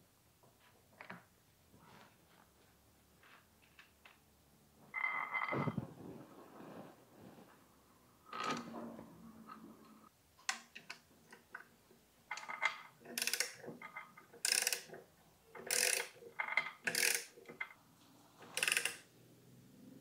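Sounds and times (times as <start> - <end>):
ratchet wrench clicking: 13.2 - 13.6, 14.4 - 14.9, 15.6 - 16.2, 16.9 - 17.3, 18.6 - 19.0.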